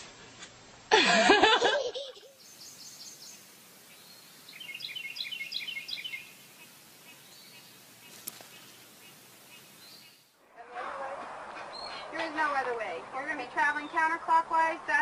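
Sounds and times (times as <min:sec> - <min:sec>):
faint outdoor hiss: 0:00.0 - 0:15.0
bird chirping: 0:02.2 - 0:10.4, 0:11.5 - 0:14.3.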